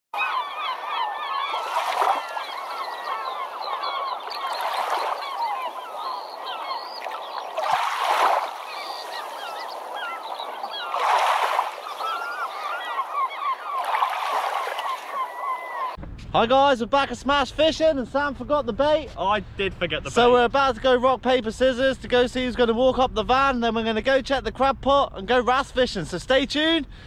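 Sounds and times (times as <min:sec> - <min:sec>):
crowd of birds calling: 0:00.2 - 0:16.0.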